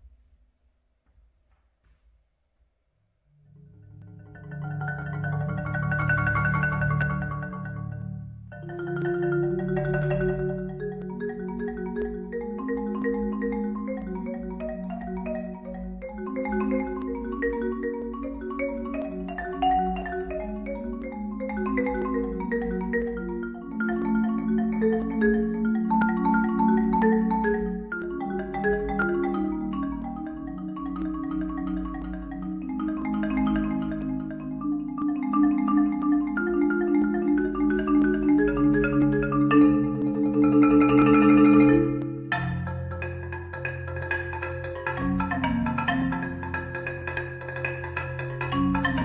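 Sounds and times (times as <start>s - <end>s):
marimba played with mallets: 3.6s - 49.0s.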